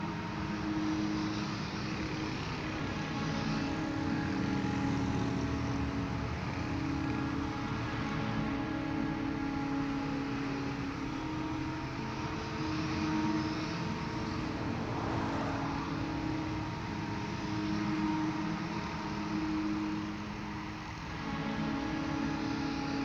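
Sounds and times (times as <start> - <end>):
vehicle engine hum: 0.0 - 23.0
car passing by: 14.4 - 16.1.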